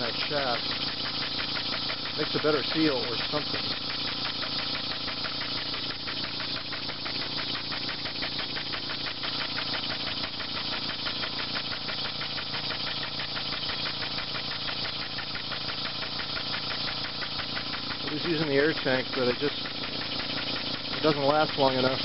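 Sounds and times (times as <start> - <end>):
cicadas buzzing: 0.0 - 22.0
model steam engine chuffing: 0.0 - 22.0.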